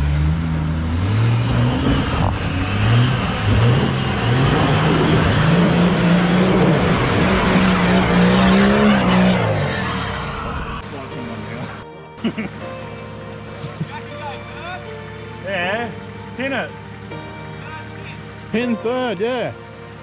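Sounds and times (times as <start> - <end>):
engine revving hard: 0.0 - 11.8
tyres churning in mud: 0.0 - 14.9.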